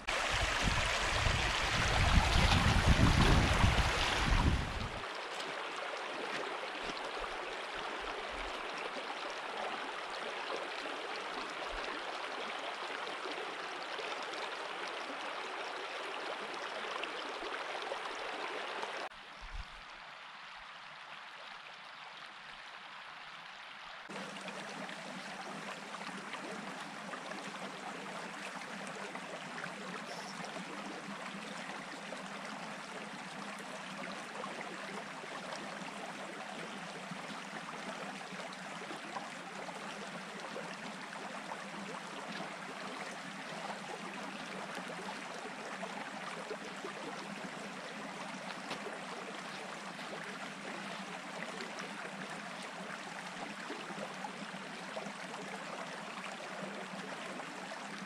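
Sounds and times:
stream babbling over stones: 0:00.0 - 0:19.7, 0:24.1 - 0:58.0.

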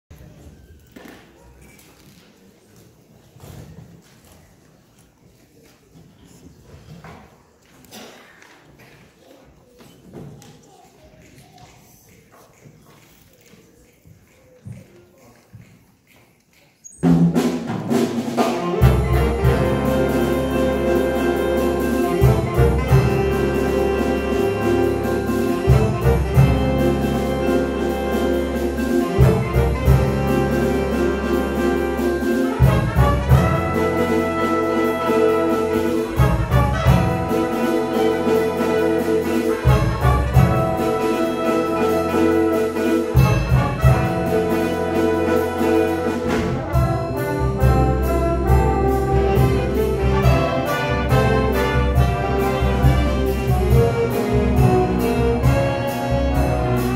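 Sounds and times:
big band jazz: 0:17.0 - 0:56.9
drum accents: 0:17.0 - 0:56.9.

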